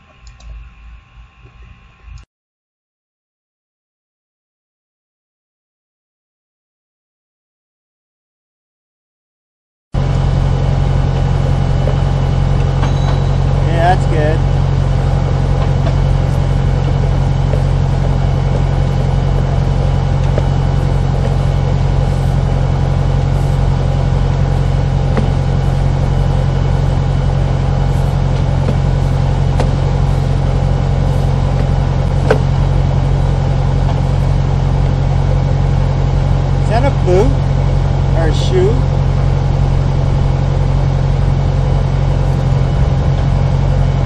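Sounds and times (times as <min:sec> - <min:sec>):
engine running steadily: 0:10.0 - 0:44.0.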